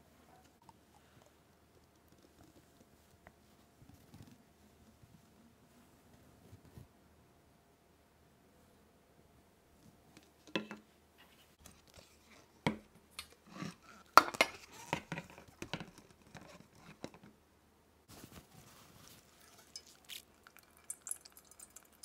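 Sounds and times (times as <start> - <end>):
rustling scrapes: 18.1 - 20.2
kitchen utensils clinking: 19.4 - 20.2.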